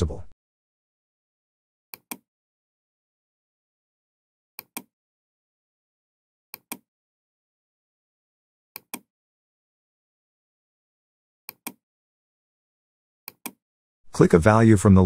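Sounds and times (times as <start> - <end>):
computer mouse clicks: 2.0 - 2.2, 4.6 - 4.9, 6.6 - 6.8, 8.8 - 9.1, 11.5 - 11.8, 13.3 - 13.6.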